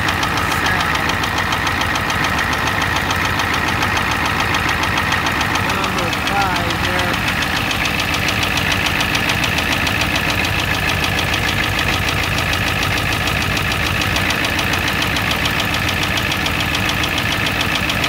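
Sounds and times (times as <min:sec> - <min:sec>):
diesel engine idling with knock: 0:00.0 - 0:18.0.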